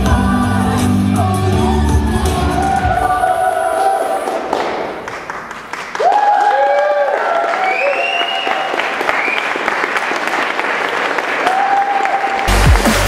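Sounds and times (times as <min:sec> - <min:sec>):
audience applauding: 0:04.2 - 0:13.0
whoops and shouted cheers: 0:06.0 - 0:09.5, 0:11.4 - 0:12.5.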